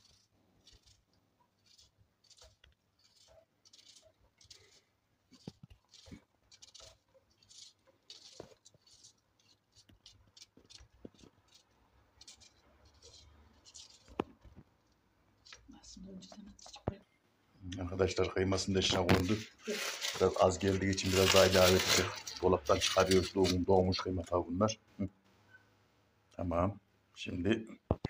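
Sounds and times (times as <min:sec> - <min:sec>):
knife dicing onion: 0:00.0 - 0:04.8.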